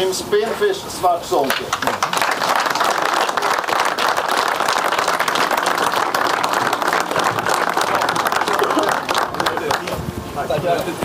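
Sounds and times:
crowd applauding: 1.7 - 10.0.

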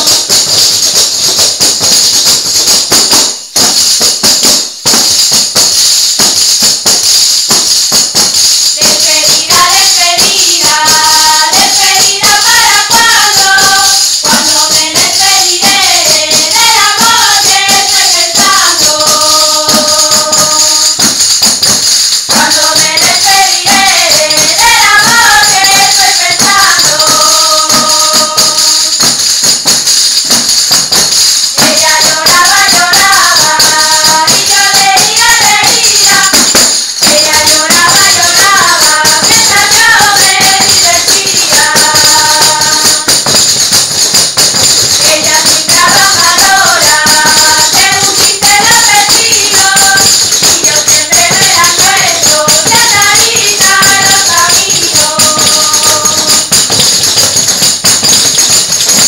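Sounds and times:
frame drums with jingles: 0.0 - 59.0
women singing together: 8.6 - 29.3, 31.2 - 57.2.

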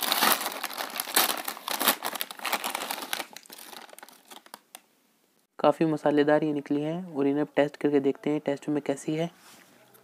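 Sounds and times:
snack packet crinkling: 0.0 - 4.8.

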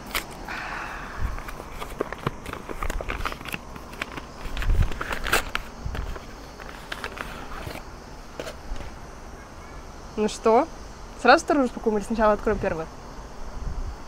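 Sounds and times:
gift packaging rustling: 1.3 - 9.0.

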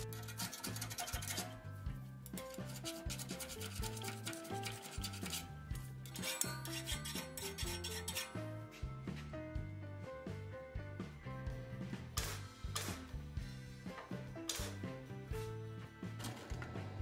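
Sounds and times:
hand file rasping on steel: 0.0 - 1.7, 2.3 - 8.5
background music: 0.0 - 17.0.

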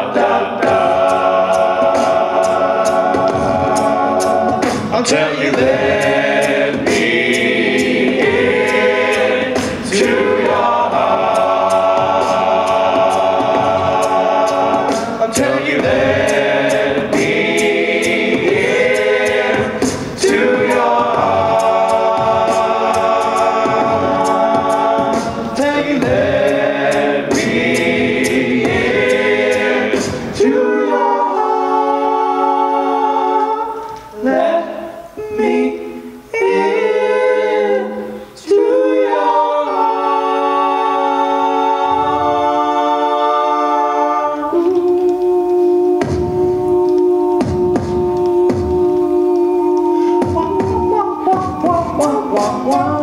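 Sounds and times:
male choir singing close harmony: 0.0 - 53.0
vocal percussion beat: 0.0 - 53.0
vocal bass line: 40.5 - 53.0.

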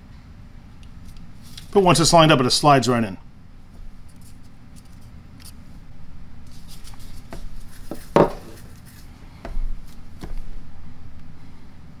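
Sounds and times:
tool knocking on wooden workbench: 7.4 - 8.6.

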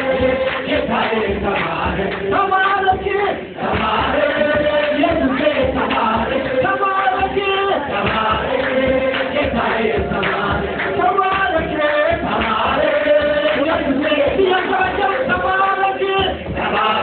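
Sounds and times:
church choir singing: 0.0 - 15.6, 16.5 - 17.0
steady drum beat: 0.0 - 17.0
man leading into a microphone: 2.2 - 3.6, 6.5 - 7.9, 13.5 - 16.7.

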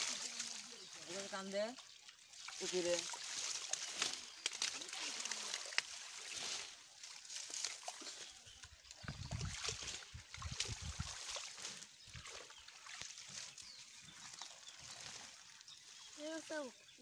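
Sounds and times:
plants rustling and crackling: 0.0 - 17.0
pond water sloshing and trickling: 0.0 - 17.0.

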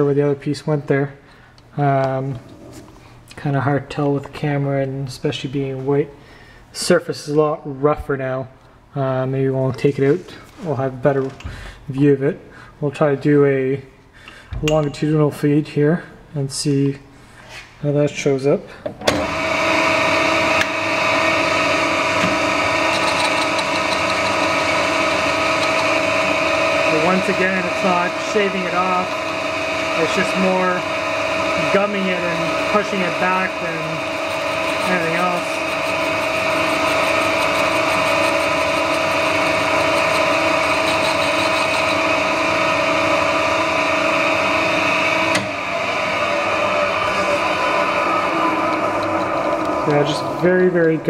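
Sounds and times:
metal lathe whine: 19.2 - 51.0.

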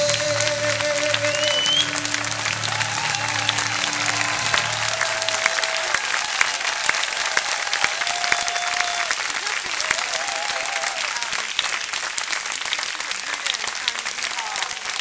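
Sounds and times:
held music chord: 0.0 - 6.2
crowd whistling: 0.0 - 9.2
audience clapping: 0.0 - 15.0.

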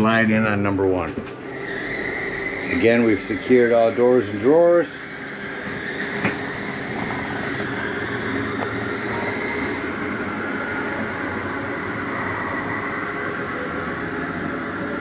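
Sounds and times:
electric motor whirring: 1.5 - 15.0.

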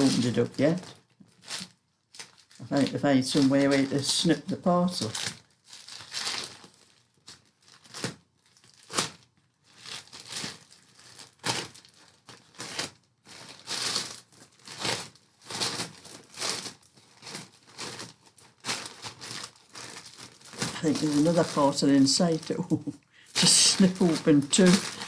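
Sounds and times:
postal bag packaging crinkling: 0.0 - 25.0.

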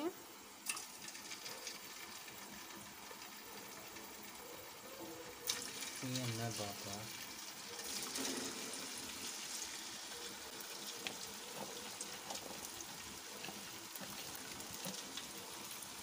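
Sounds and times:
potatoes deep-frying in oil: 0.0 - 16.0
small crackles: 0.6 - 16.0.

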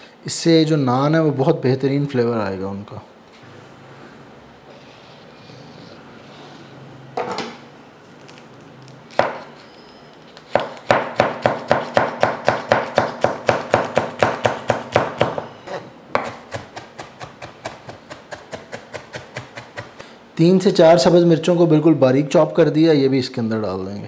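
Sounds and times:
knife chopping on cutting board: 9.1 - 9.5, 10.5 - 15.5, 16.1 - 20.0.

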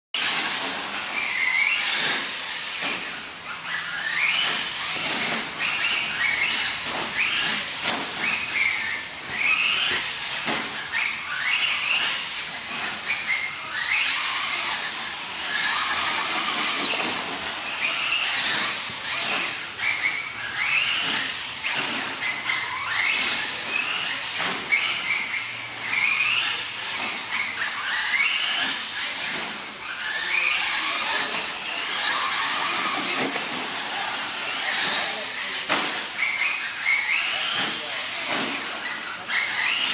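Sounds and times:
electric motor whining: 13.3 - 21.6.

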